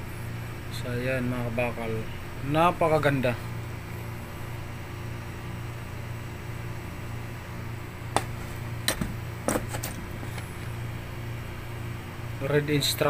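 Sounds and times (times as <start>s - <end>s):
low background hum: 0.0s - 13.0s
metal torch clicking and knocking: 8.2s - 10.0s.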